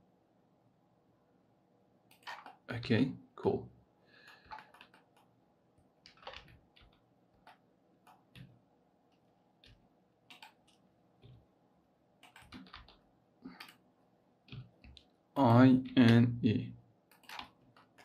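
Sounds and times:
keyboard and mouse clicking: 2.1 - 2.6, 4.3 - 5.3, 6.0 - 8.5, 9.1 - 11.4, 12.2 - 13.8, 17.1 - 18.0.

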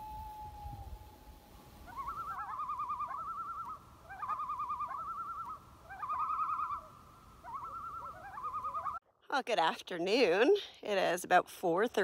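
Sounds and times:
bird's rapid wavering call: 1.8 - 9.0.

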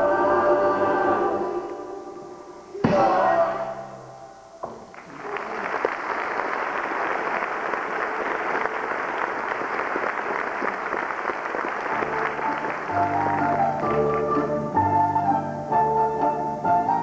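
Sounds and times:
music: 0.0 - 4.8, 11.9 - 17.0
audience applauding: 4.9 - 14.6.

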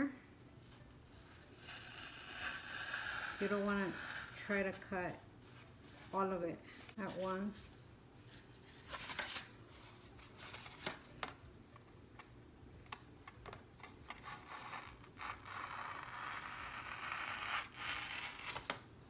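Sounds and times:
knife scraping foam board: 1.2 - 4.9, 14.1 - 18.8.

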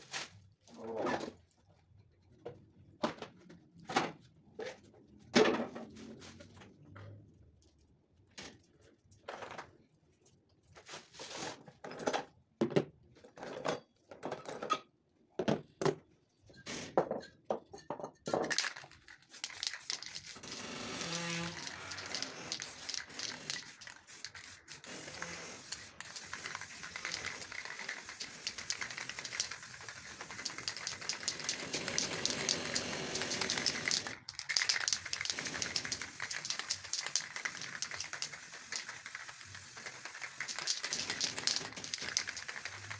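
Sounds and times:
spray paint can hissing: 18.6 - 42.9.

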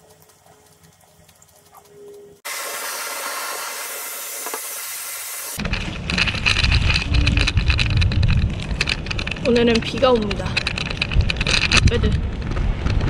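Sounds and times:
loud steady hiss: 2.4 - 5.6
wind buffeting microphone: 5.6 - 13.0.

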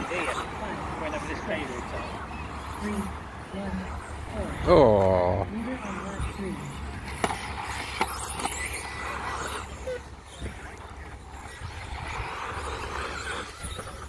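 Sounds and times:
rc car motors whining: 0.0 - 14.0
wind rumble on microphone: 9.5 - 14.0.

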